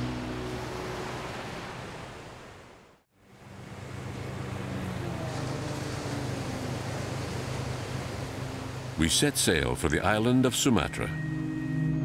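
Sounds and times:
surf washing on beach: 0:00.0 - 0:09.7
wind and water: 0:00.0 - 0:12.0
low motor hum: 0:03.2 - 0:09.0.

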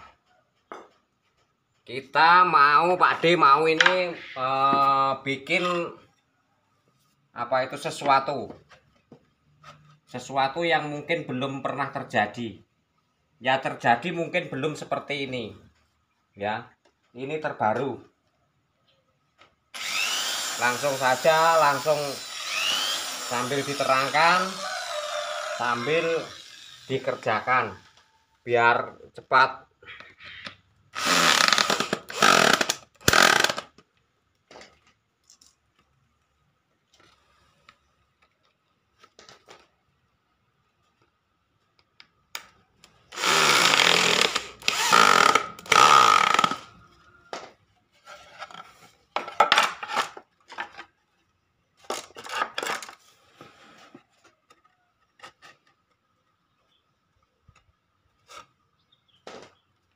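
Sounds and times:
electric drill boring into wood: 0:19.7 - 0:28.1, 0:31.0 - 0:33.7, 0:43.1 - 0:46.7.

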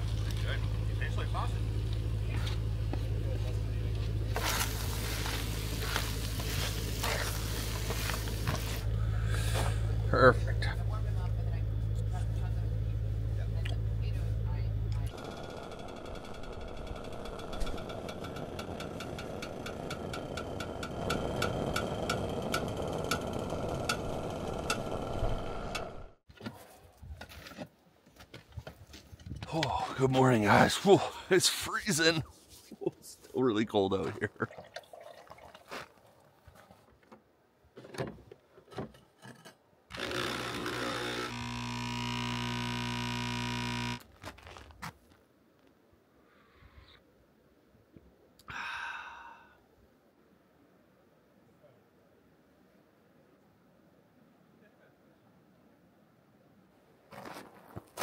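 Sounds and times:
fire pit flame rushing: 0:04.2 - 0:09.8, 0:15.2 - 0:26.2
pump buzzing: 0:15.1 - 0:26.1, 0:39.9 - 0:44.1
espresso machine rush: 0:39.9 - 0:44.0.

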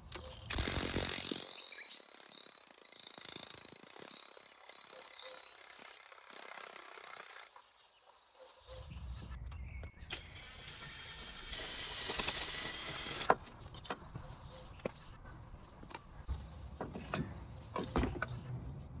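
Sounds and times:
impact wrench driving a screw: 0:00.5 - 0:07.8, 0:10.1 - 0:13.4.

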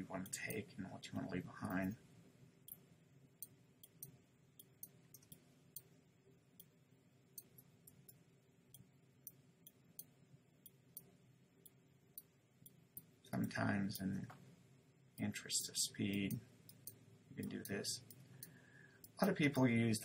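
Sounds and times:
faint room hum: 0:00.0 - 0:20.0
computer mouse clicks: 0:03.4 - 0:05.9.

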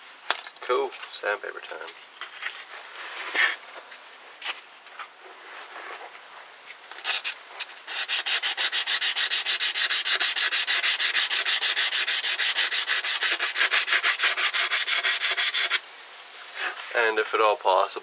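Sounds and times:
sandpaper on metal: 0:07.0 - 0:15.8.

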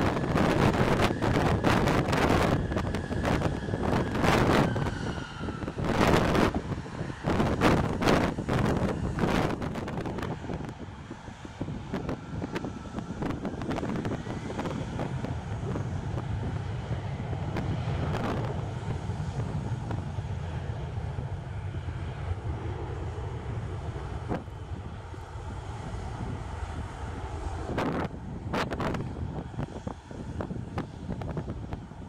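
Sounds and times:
jet engines running at low power: 0:00.0 - 0:32.0
wind buffeting microphone: 0:00.0 - 0:32.0.

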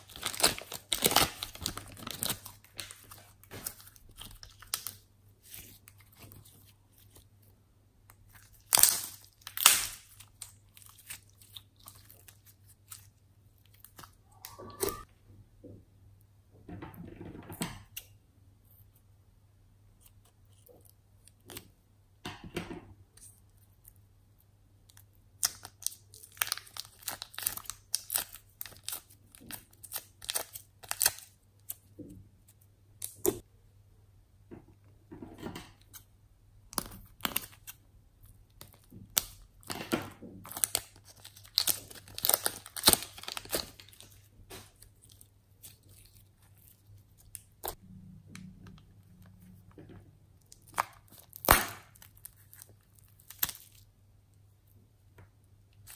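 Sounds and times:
plastic crinkling: 0:00.0 - 0:07.3, 0:24.9 - 0:31.9, 0:38.5 - 0:47.8
sticky slime squelching: 0:00.0 - 0:15.1, 0:35.8 - 0:47.8, 0:48.4 - 0:55.9.

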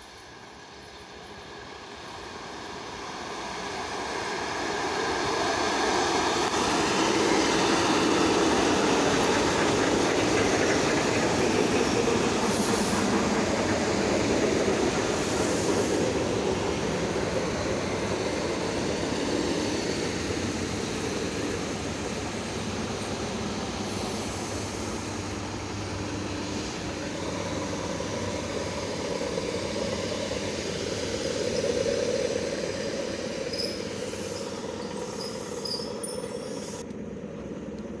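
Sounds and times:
train wheels rumbling: 0:00.0 - 0:38.0
faint high squeaks: 0:33.5 - 0:36.8.

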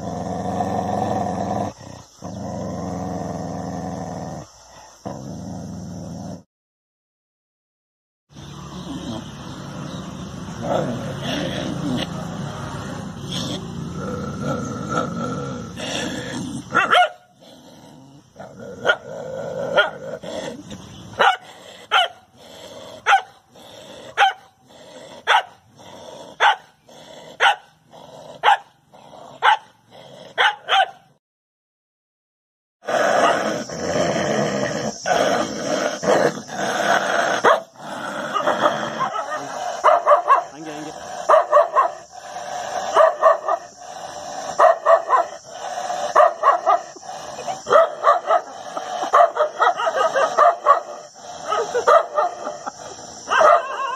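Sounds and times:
dogs barking: 0:16.6 - 0:17.3, 0:18.8 - 0:19.1, 0:19.7 - 0:20.2, 0:21.1 - 0:22.3, 0:23.0 - 0:23.4, 0:24.1 - 0:24.5, 0:25.1 - 0:25.6, 0:26.2 - 0:31.1, 0:33.0 - 0:33.7, 0:35.0 - 0:53.9.

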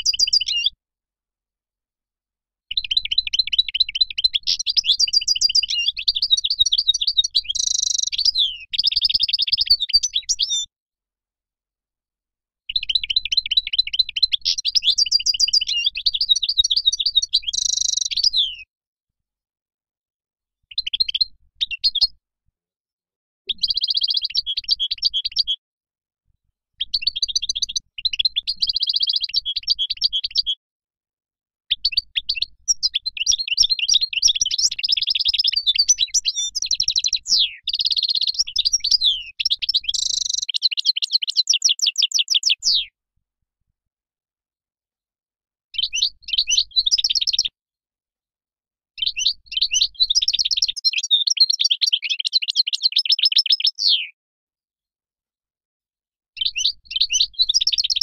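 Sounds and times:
finch twittering song: 0:00.0 - 0:00.8, 0:02.7 - 0:10.7, 0:12.7 - 0:18.7, 0:20.7 - 0:22.2, 0:23.5 - 0:25.6, 0:26.7 - 0:30.6, 0:31.7 - 0:42.9, 0:45.7 - 0:47.5, 0:49.0 - 0:54.2, 0:56.4 - 0:58.0.

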